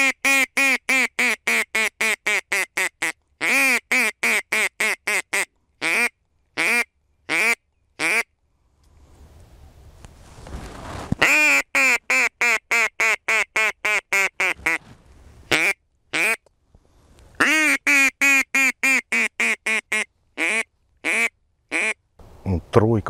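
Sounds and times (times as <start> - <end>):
duck call quacks: 0.0 - 8.3, 11.2 - 14.8, 15.5 - 16.4, 17.4 - 22.0
faint rustling: 8.4 - 11.3, 14.4 - 15.6, 16.5 - 17.4.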